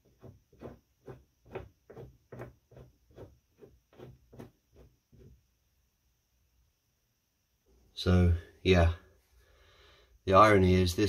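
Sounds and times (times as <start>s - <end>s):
roller rubbing swish: 0.0s - 5.4s.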